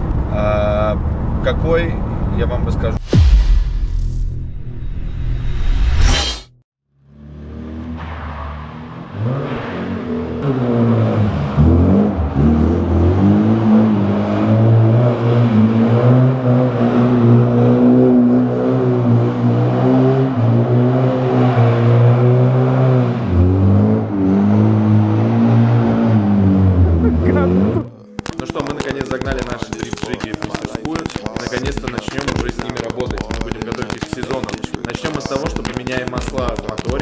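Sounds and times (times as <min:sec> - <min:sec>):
car engine revving hard: 0:08.8 - 0:27.9.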